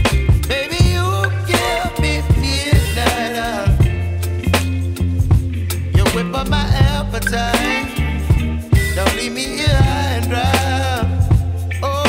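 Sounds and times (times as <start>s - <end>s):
deep bass line: 0.0s - 12.0s
steady drum beat: 0.0s - 12.0s
wavering melodic line: 6.2s - 10.9s.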